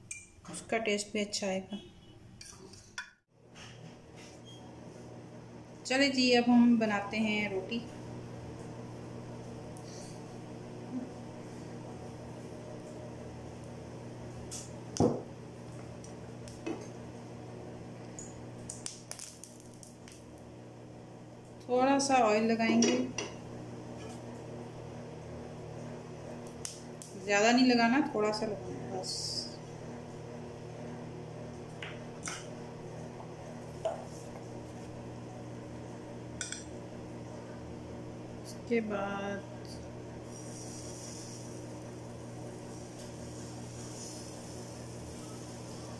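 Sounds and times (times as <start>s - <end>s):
kitchenware clinking: 22.6s - 23.4s.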